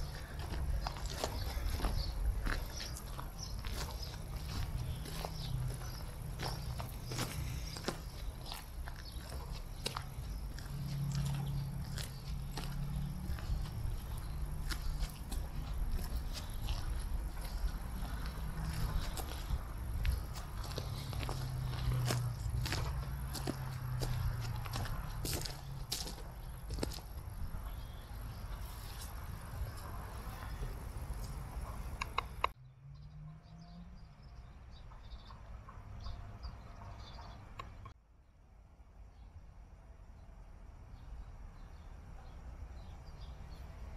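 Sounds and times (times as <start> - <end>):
footsteps crunching on gravel: 0.0 - 31.8
steady low hum: 0.0 - 32.6.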